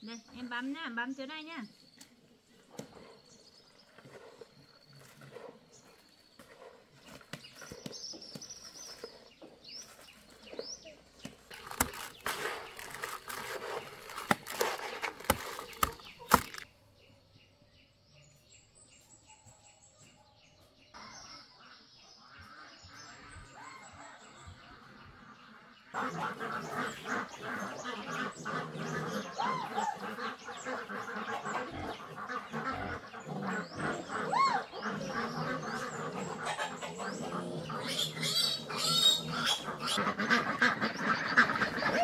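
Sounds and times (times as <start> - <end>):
hands stirring dry puffed rice: 11.2 - 16.7.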